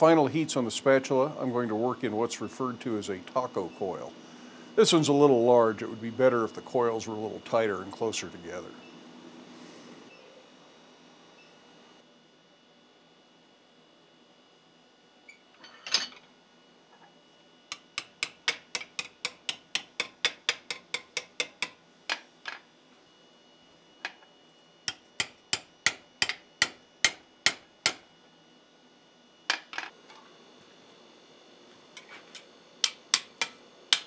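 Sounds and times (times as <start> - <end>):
hammer striking steel: 24.9 - 28.0, 32.8 - 34.0.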